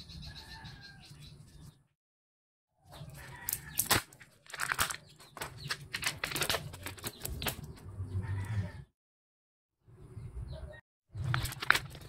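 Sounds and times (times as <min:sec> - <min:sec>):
plastic wrapper crinkling and tearing: 0:03.2 - 0:07.7, 0:11.3 - 0:12.0.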